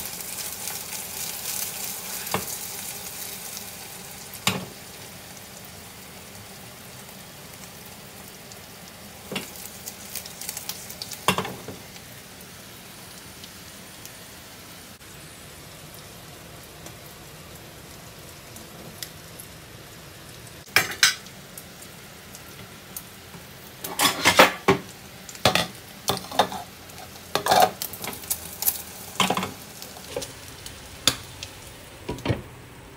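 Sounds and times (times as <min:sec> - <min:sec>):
food sizzling in a pan: 0:00.0 - 0:32.9
cookware clinking and clattering: 0:20.7 - 0:21.3, 0:23.8 - 0:24.8, 0:27.4 - 0:28.2.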